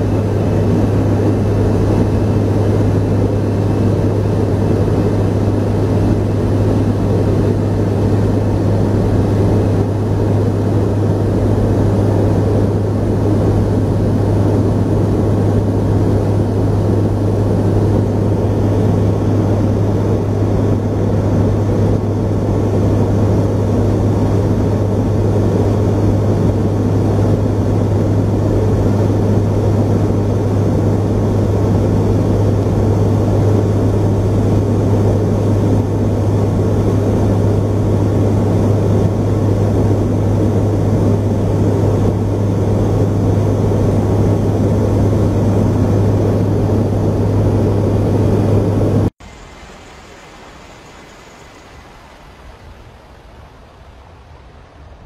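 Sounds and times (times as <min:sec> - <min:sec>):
aircraft engines and rotors droning: 0:00.0 - 0:55.0.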